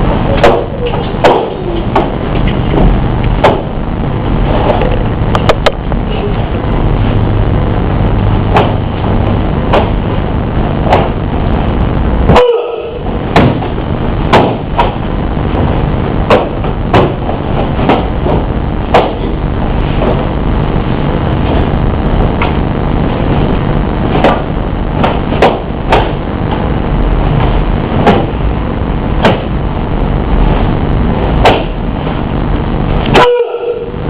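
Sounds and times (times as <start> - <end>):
rumbling background noise: 0.0 - 34.0
staff knocks and snaps: 0.4 - 3.7, 8.5 - 8.8, 9.7 - 10.0, 10.8 - 11.2, 13.3 - 15.0, 16.3 - 19.2, 24.1 - 24.4, 25.0 - 26.2, 27.4 - 28.3, 29.2 - 29.5, 31.4 - 31.8.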